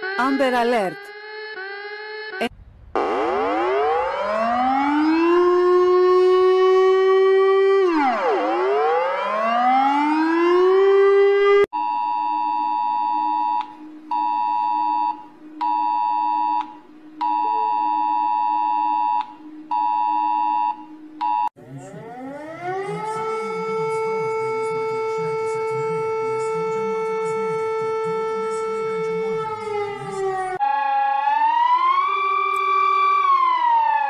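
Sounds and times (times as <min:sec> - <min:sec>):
civil defense siren: 0:00.0 - 0:00.4, 0:01.0 - 0:11.7, 0:12.3 - 0:34.0
dual-tone alert signal blasts: 0:11.8 - 0:30.6.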